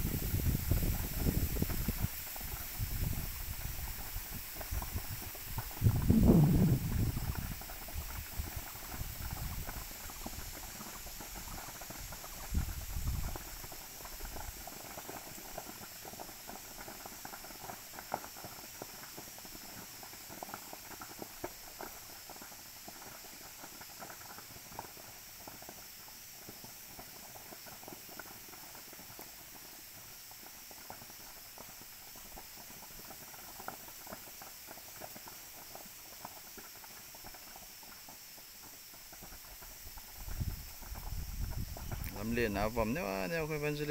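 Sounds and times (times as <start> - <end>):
distant fire crackling: 0.0 - 43.9
low rumble: 5.8 - 7.3.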